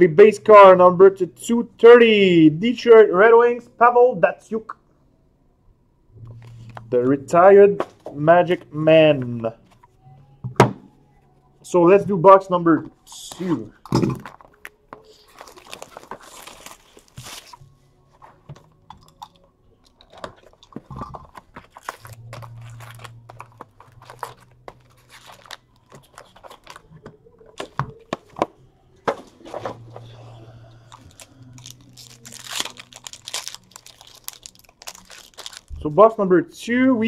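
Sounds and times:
wrappers crinkling and tearing: 0:14.2 - 0:18.2, 0:19.0 - 0:27.7, 0:30.8 - 0:36.1.

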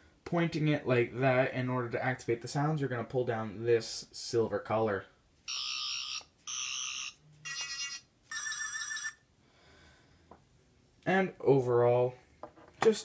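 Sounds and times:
toy buzzy electronic bursts: 0:05.5 - 0:08.5.

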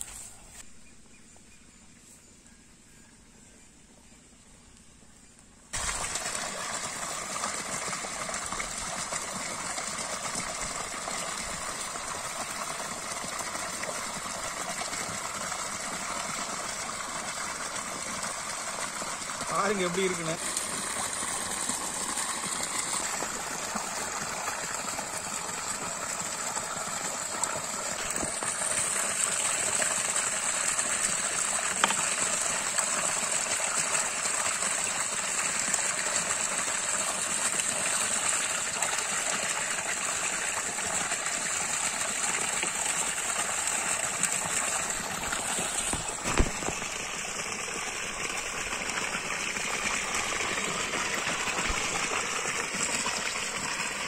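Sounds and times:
water splashing on ground: 0:05.7 - 0:16.0, 0:19.4 - 0:26.0, 0:27.2 - 0:33.7, 0:42.6 - 0:54.0
water gushing from a pipe: 0:05.7 - 0:54.0.

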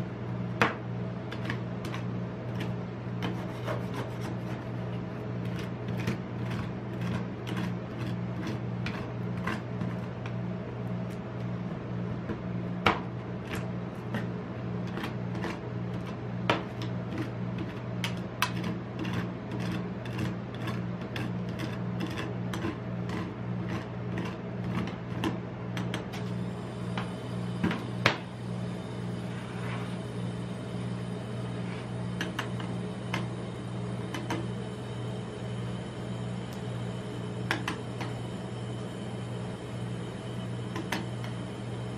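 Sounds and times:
steady low hum: 0:00.0 - 0:41.9
spatula scraping: 0:01.2 - 0:10.4, 0:13.3 - 0:26.3, 0:29.2 - 0:30.1, 0:31.3 - 0:34.4.

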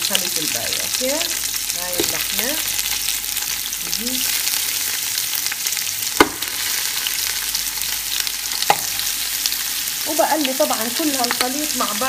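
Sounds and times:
meat sizzling in oil: 0:00.0 - 0:12.0
sharp knock: 0:06.2 - 0:06.5.

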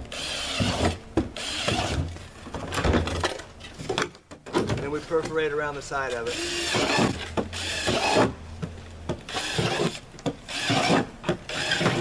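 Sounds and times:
drill boring through plastic: 0:00.1 - 0:02.0, 0:06.3 - 0:08.3, 0:09.3 - 0:12.0.

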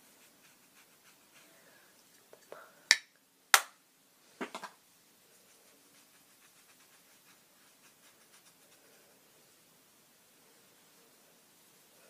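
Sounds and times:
makeup brush scratching skin: 0:00.1 - 0:01.5, 0:05.4 - 0:08.9.

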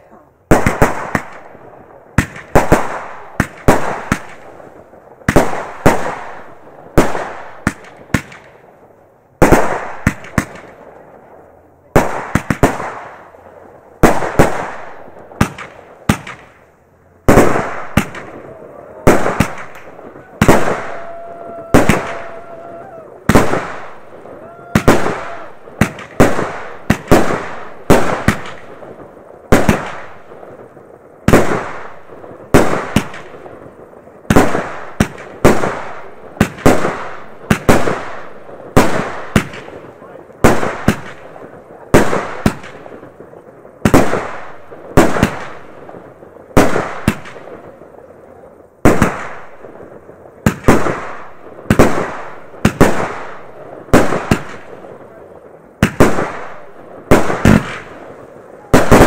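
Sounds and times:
fireworks bangs echoing: 0:00.0 - 0:08.8, 0:09.4 - 0:59.0.

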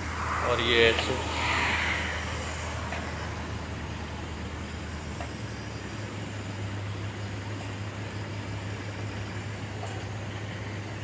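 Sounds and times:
hiss: 0:00.0 - 0:05.2
truck engine idling: 0:01.9 - 0:11.0.

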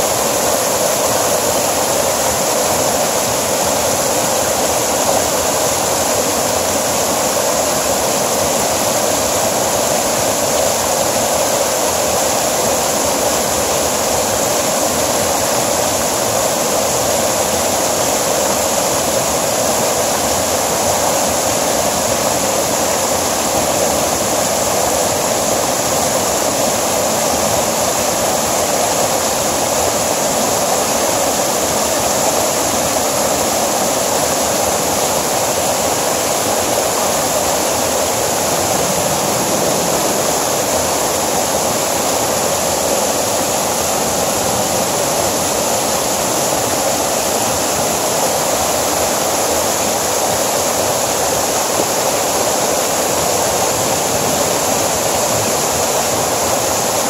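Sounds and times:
stream rushing over boulders: 0:00.0 - 0:57.0.

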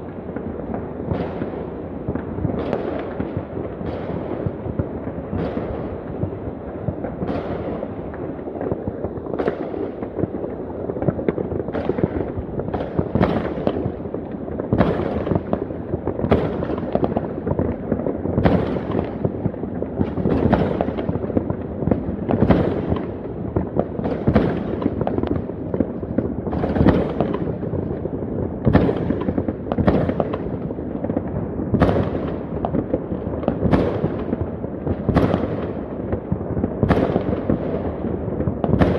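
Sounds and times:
distant fireworks crackling: 0:00.0 - 0:38.9
sharp firework bangs: 0:11.0 - 0:13.9, 0:14.7 - 0:17.6, 0:18.4 - 0:19.4, 0:20.0 - 0:25.9, 0:26.5 - 0:27.7, 0:28.6 - 0:30.5, 0:31.1 - 0:38.9.

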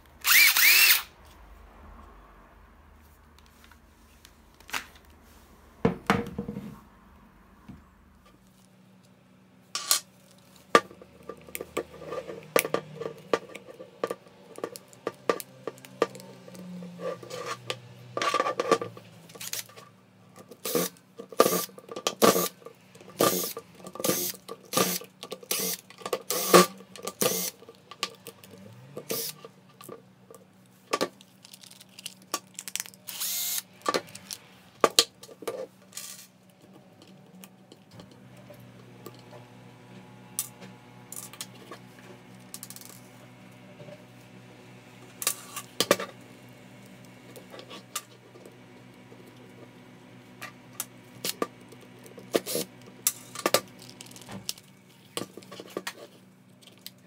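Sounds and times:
impact driver running in bursts: 0:00.2 - 0:01.1, 0:20.6 - 0:22.5, 0:23.2 - 0:27.6, 0:28.8 - 0:29.4, 0:33.1 - 0:34.3.

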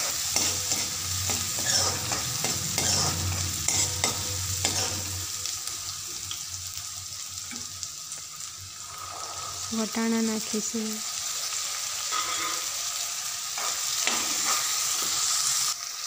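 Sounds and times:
food sizzling in hot oil: 0:00.0 - 0:16.0
metal ladle scraping a pan: 0:00.2 - 0:05.4, 0:12.0 - 0:12.8.

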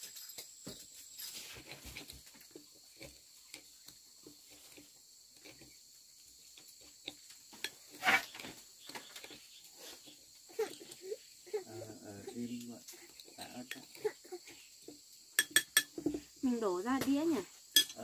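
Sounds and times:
soft chewing: 0:01.4 - 0:08.0.

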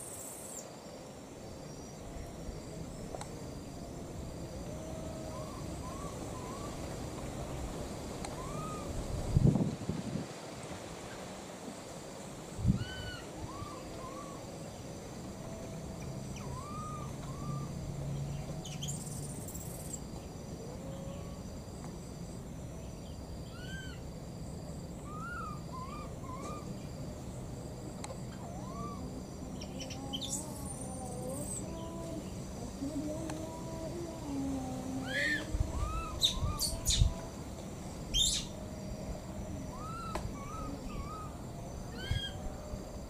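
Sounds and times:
baby macaque coo calls: 0:28.3 - 0:29.0, 0:35.0 - 0:37.1, 0:39.7 - 0:41.3, 0:41.9 - 0:42.4.

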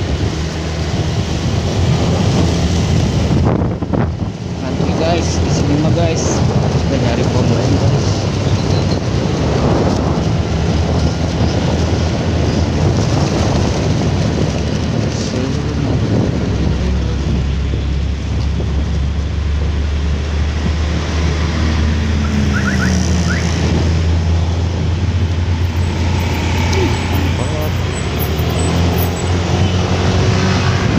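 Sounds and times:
motorcycle engine and road noise: 0:00.0 - 0:30.9
wind noise on microphone: 0:00.0 - 0:30.9.

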